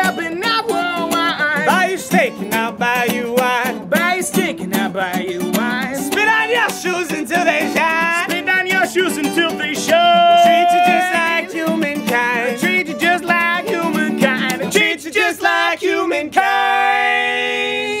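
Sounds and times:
acoustic guitar strumming: 0:00.0 - 0:17.6
men singing: 0:00.0 - 0:18.0.

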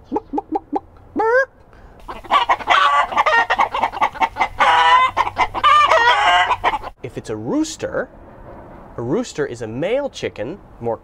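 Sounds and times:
chickens calling: 0:00.0 - 0:01.0, 0:02.0 - 0:07.0
hen clucking: 0:00.0 - 0:01.0, 0:02.0 - 0:07.0
rooster crowing: 0:02.0 - 0:06.9.

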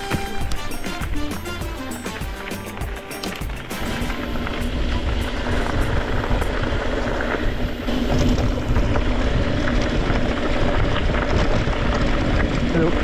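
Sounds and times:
bike tyre noise: 0:00.0 - 0:13.0
uneven rumble: 0:03.6 - 0:13.0
wind buffeting microphone: 0:04.1 - 0:13.0.

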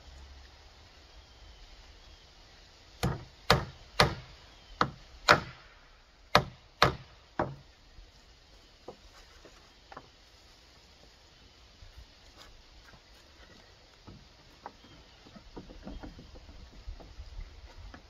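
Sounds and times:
hammer driving nails into wood: 0:03.0 - 0:05.6, 0:06.3 - 0:07.6.

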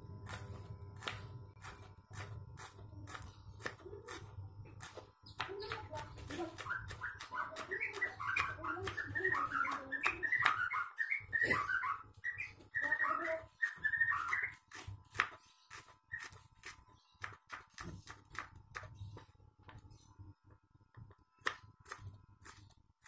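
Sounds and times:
knife chopping on wooden board: 0:00.2 - 0:10.7, 0:14.3 - 0:19.0, 0:21.4 - 0:22.8.

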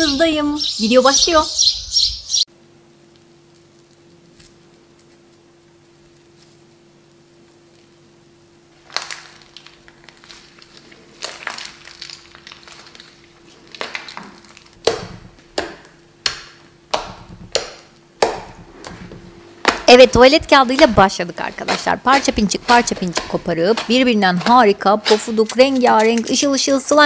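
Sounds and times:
slime squishing and crackling: 0:08.7 - 0:15.4.

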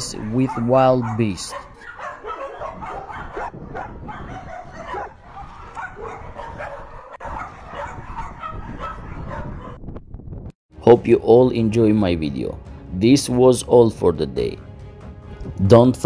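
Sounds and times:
dogs barking and yipping: 0:00.0 - 0:09.9.

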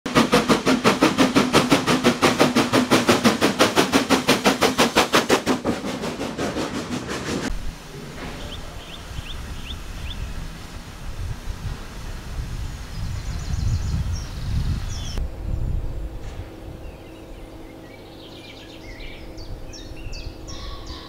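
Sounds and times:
steam locomotive chuffing: 0:00.1 - 0:15.2
low rumble: 0:07.5 - 0:20.8.

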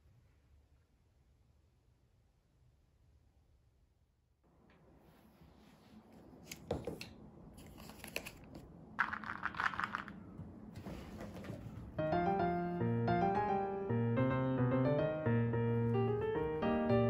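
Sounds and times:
rustling handling noise: 0:07.6 - 0:12.0.

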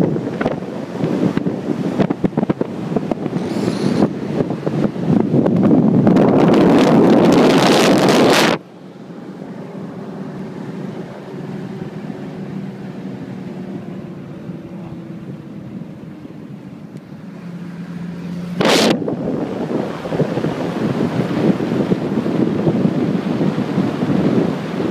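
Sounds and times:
wind buffeting microphone: 0:00.0 - 0:08.6, 0:18.6 - 0:24.9
car engine hum inside cabin: 0:00.0 - 0:24.9.

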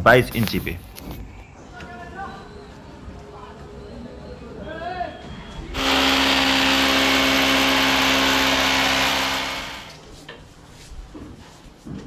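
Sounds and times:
hammer drill boring into wall: 0:05.8 - 0:10.0.

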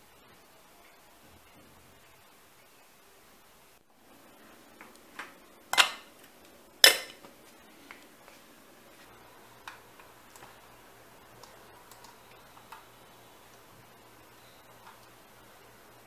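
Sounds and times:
keyboard typing clicks: 0:11.3 - 0:12.9.

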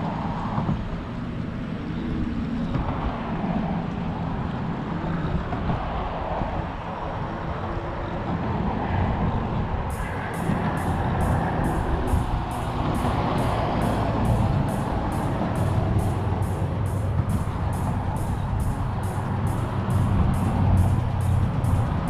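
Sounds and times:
wind buffeting microphone: 0:00.0 - 0:22.0
low motor hum: 0:09.9 - 0:22.0.

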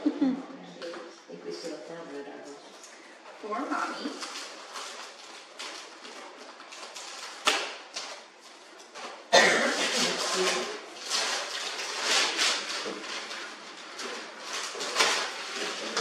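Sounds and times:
wrapping paper tearing: 0:03.6 - 0:16.0.

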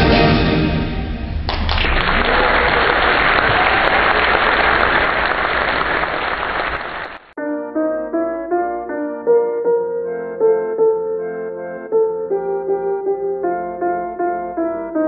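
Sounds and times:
steady applause: 0:01.5 - 0:07.4.

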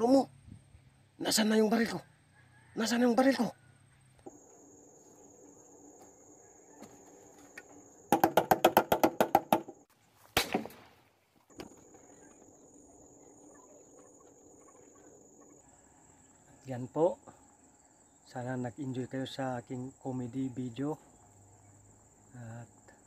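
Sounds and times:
crickets trilling: 0:00.0 - 0:09.9, 0:11.5 - 0:23.0
single gunshot: 0:10.3 - 0:11.0.

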